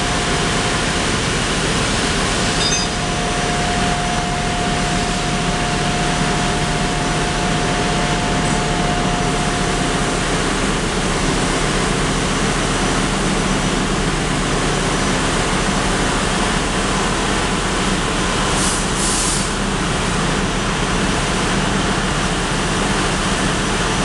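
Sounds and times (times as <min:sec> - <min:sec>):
ship engine room machinery: 0:00.0 - 0:24.0.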